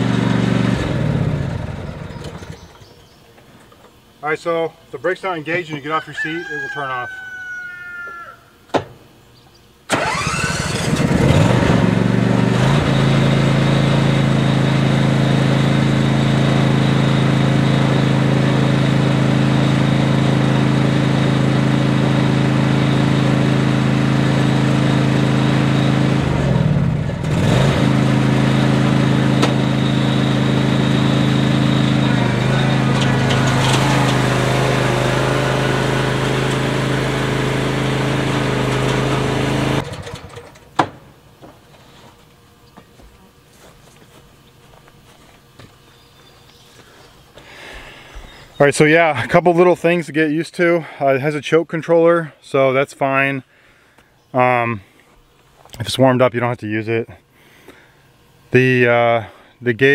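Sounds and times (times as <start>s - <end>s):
mower engine starting and running: 0.0s - 3.0s, 9.9s - 41.2s.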